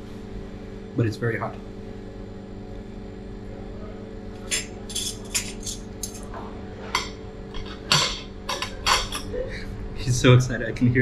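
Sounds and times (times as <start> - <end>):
steady low hum: 0.0 - 11.0
cutlery and crockery clinking: 4.5 - 6.3, 6.9 - 9.3.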